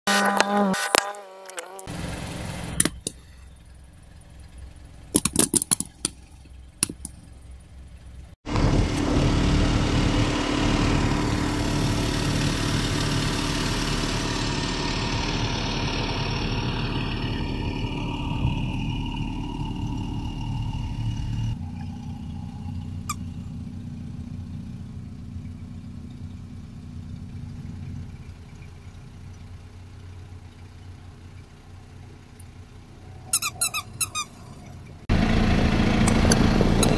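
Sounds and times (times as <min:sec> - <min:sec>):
car engine starting and idling: 0:01.8 - 0:36.9
sharp clicks and knocks: 0:05.1 - 0:07.3.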